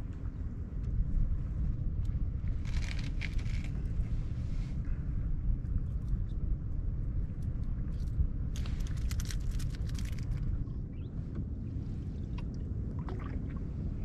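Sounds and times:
steady low rumble: 0.0s - 14.0s
water splashing and trickling: 8.6s - 10.6s, 12.2s - 13.9s.

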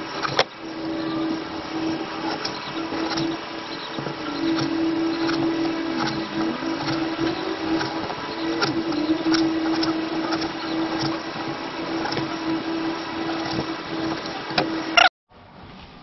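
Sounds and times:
steady mechanical hum: 0.0s - 16.0s.

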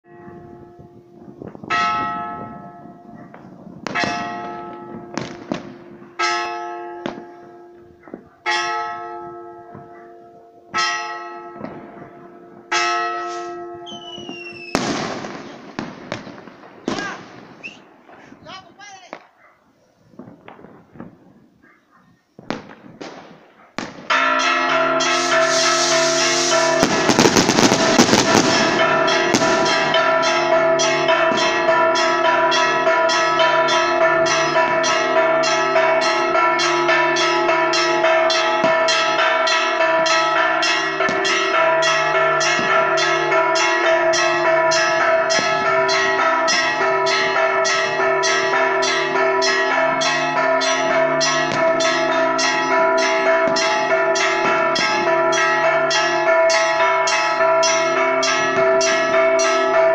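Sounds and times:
church bells ringing: 0.0s - 14.1s, 23.5s - 59.9s
firework crackling and popping: 14.1s - 18.4s, 25.1s - 28.8s.

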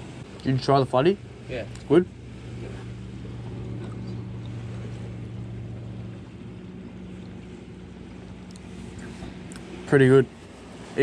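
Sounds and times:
motorboat engine hum: 0.0s - 11.0s
surf washing: 0.0s - 11.0s
wind: 0.0s - 11.0s.

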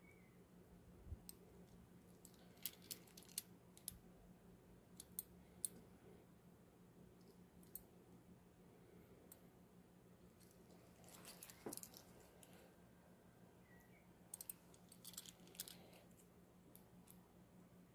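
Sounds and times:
handcuff ratchet clicking: 2.2s - 4.0s, 14.3s - 15.8s.

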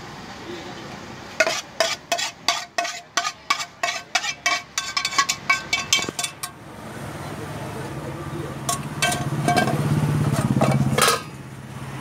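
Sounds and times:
metal spatula tapping metal pan: 1.4s - 6.6s, 8.7s - 9.8s.

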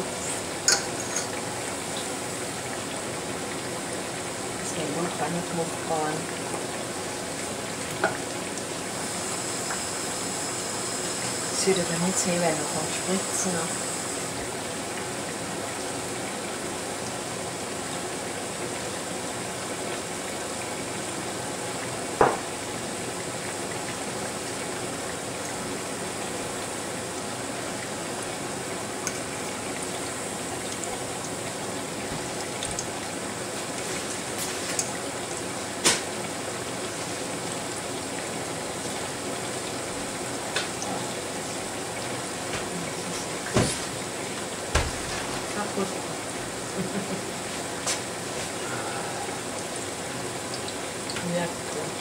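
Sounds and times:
food sizzling in hot fat: 0.0s - 3.4s, 4.0s - 17.0s.

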